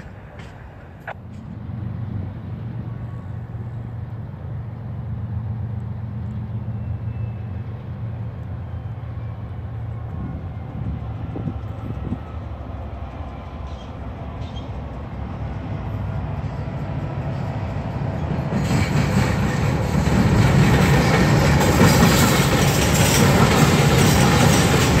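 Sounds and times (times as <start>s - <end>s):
distant train engine rumble: 0.0s - 25.0s
wind buffeting microphone: 9.7s - 13.3s.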